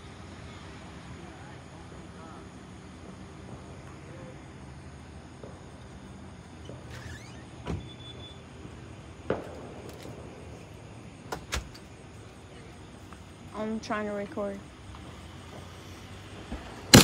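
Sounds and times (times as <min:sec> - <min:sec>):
distant fireworks bangs: 0:01.9 - 0:12.3, 0:14.4 - 0:17.0
rising firework whistle: 0:05.4 - 0:10.8.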